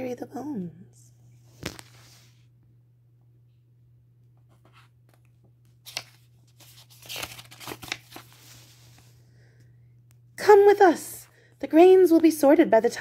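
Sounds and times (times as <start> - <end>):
paper rustling and flapping: 1.5 - 2.3, 4.6 - 9.2.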